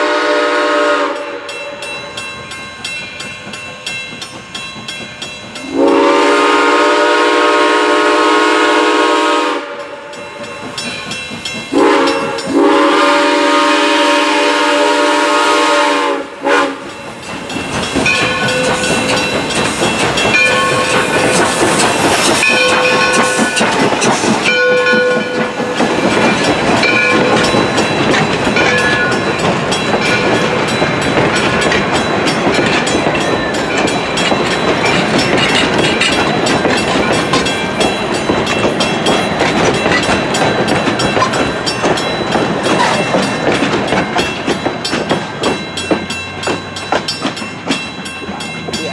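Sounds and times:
steam locomotive whistle: 0:00.0 - 0:01.9, 0:05.6 - 0:10.4, 0:11.7 - 0:17.0, 0:20.3 - 0:23.8
train wheels clattering over rails: 0:01.8 - 0:48.9.

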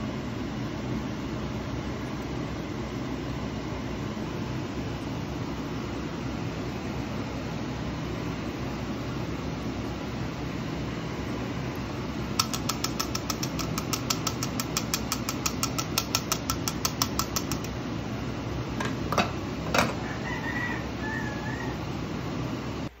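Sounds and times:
steady low hum: 0:00.0 - 0:23.0
mesh strainer tapping clicks: 0:12.4 - 0:17.8.

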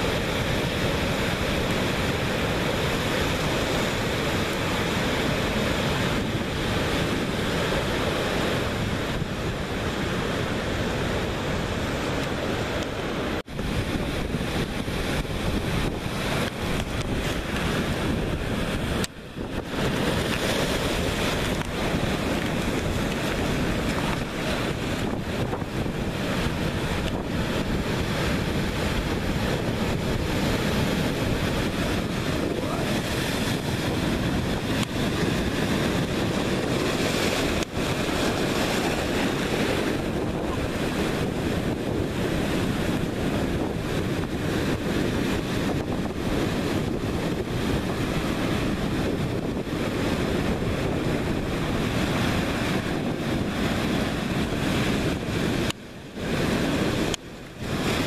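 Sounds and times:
waves crashing on rocks: 0:00.0 - 0:58.0
wind buffeting microphone: 0:00.0 - 0:58.0.

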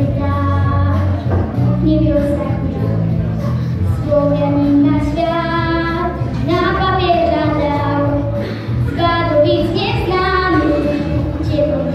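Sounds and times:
girl singing into a microphone: 0:00.0 - 0:03.2, 0:03.9 - 0:11.9
musical backing: 0:00.0 - 0:11.9.

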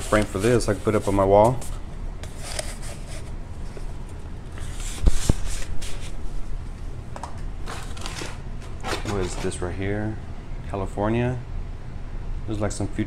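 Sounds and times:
cardboard packaging rustling: 0:00.0 - 0:06.4, 0:07.2 - 0:09.8.

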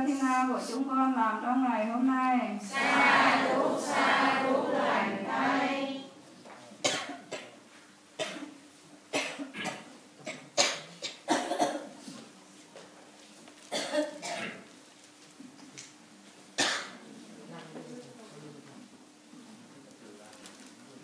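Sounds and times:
drawn-out voice: 0:02.7 - 0:06.2
person coughing and clearing throat: 0:06.8 - 0:07.5, 0:08.2 - 0:11.9, 0:13.7 - 0:14.6, 0:16.6 - 0:17.0.

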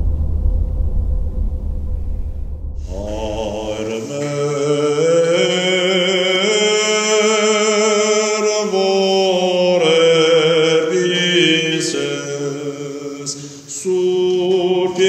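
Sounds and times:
voices chanting: 0:02.9 - 0:06.7.

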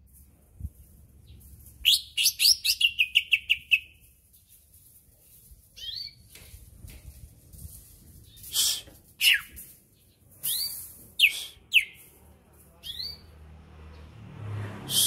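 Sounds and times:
bird singing sweeping notes: 0:09.2 - 0:12.1.

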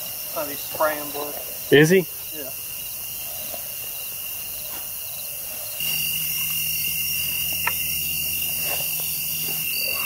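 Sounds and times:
crickets trilling: 0:00.0 - 0:10.0
low steady hum: 0:05.8 - 0:10.0.

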